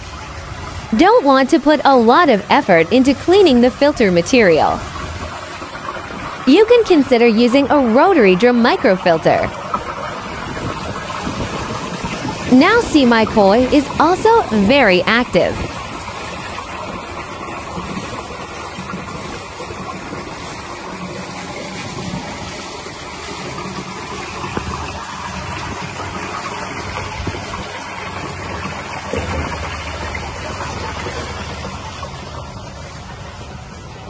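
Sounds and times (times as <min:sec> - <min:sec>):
water splashing into a pond: 0:00.0 - 0:34.0.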